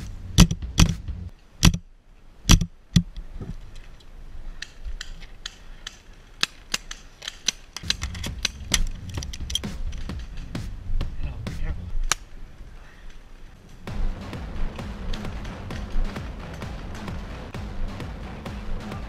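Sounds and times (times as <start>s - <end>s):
low rumble: 0.0s - 1.3s, 7.8s - 12.0s, 13.8s - 19.0s.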